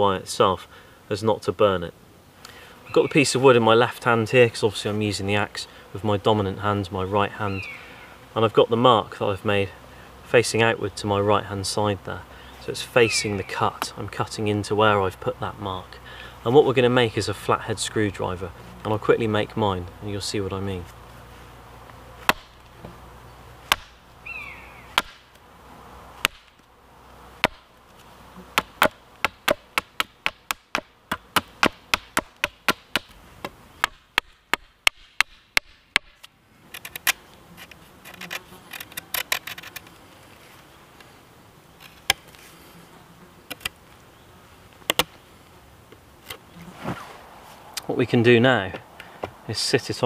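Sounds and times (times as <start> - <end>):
axe chopping wooden stick: 22.2 - 22.6, 23.7 - 24.0, 24.9 - 25.3, 26.2 - 26.6, 27.4 - 27.7, 28.5 - 36.2.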